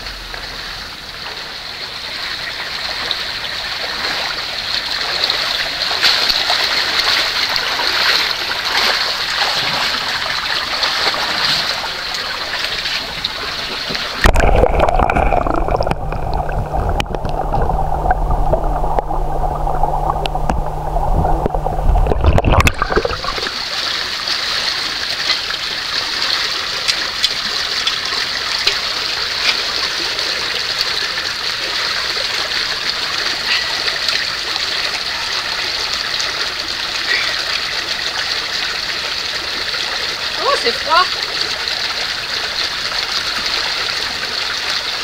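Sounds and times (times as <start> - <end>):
spring water flowing and gurgling: 0.0 - 45.0
muffled underwater rumble: 13.1 - 23.6
faint low hum: 14.3 - 23.6.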